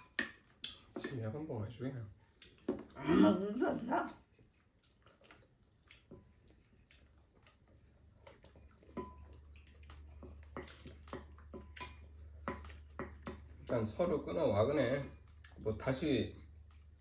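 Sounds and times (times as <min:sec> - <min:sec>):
wooden spoons clicking on bowls: 0:00.0 - 0:01.5, 0:09.9 - 0:15.9
quiet eating sounds: 0:00.0 - 0:17.0.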